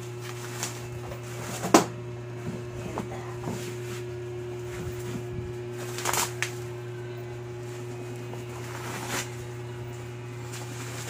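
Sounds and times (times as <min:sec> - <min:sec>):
steady low hum: 0:00.0 - 0:11.0
plastic wrap crinkling: 0:05.7 - 0:06.7.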